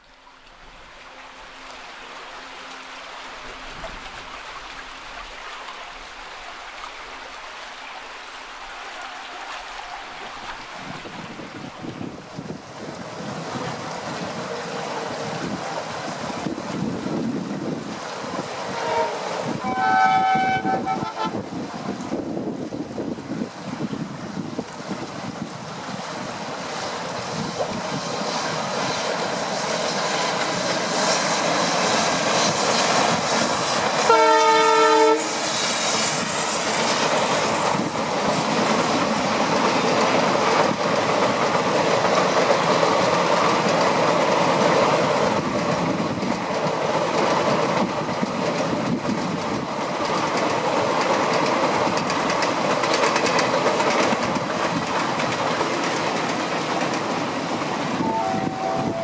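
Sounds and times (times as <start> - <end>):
train rumble and wheel clatter: 8.2 - 59.0
train horn: 13.5 - 16.3, 18.4 - 21.7, 27.4 - 37.6, 57.9 - 59.0.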